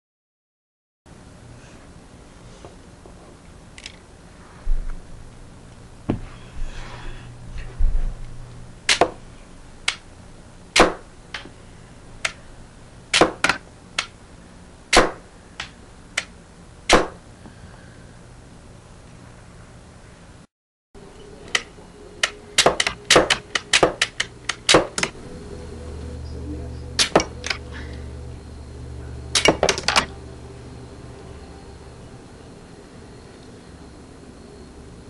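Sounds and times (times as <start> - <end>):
mechanism clicks: 3.7 - 4.0, 21.4 - 25.2, 27.0 - 27.6, 29.3 - 30.2.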